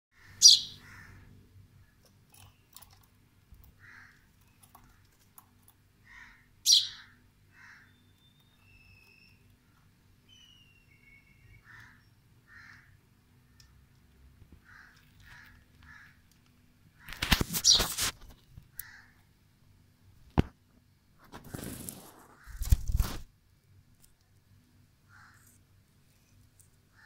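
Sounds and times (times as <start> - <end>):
baby sparrow chirping: 0.2 - 1.2, 6.1 - 9.6, 10.2 - 13.0, 17.5 - 18.0.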